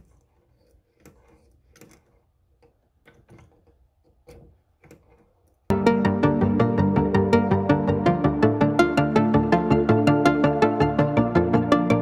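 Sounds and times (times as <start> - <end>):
electronic music with steady beat: 5.7 - 12.0.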